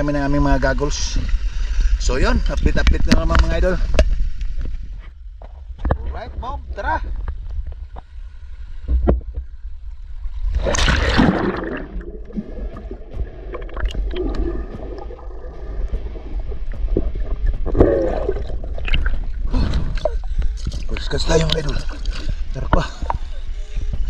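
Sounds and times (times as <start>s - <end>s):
underwater gurgling and bubbling: 10.2s - 24.0s
water splash: 10.4s - 22.2s.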